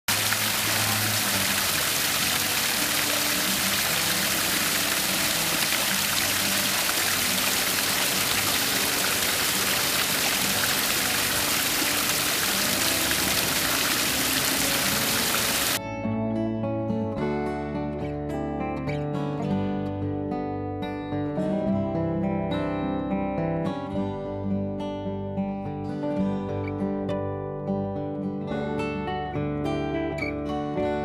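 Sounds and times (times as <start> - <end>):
small waterfalls splashing: 0.0 - 15.8.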